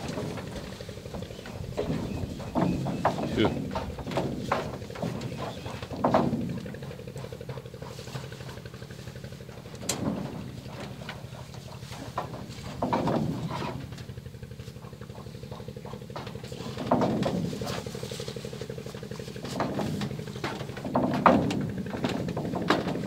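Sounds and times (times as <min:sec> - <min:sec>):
engine drone with surges: 0:00.0 - 0:23.0.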